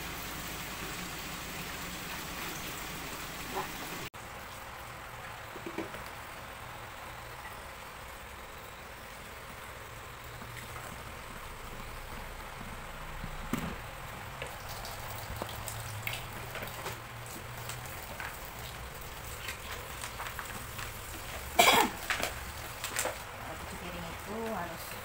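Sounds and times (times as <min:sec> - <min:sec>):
tap water running: 0:00.0 - 0:04.6, 0:10.3 - 0:24.8.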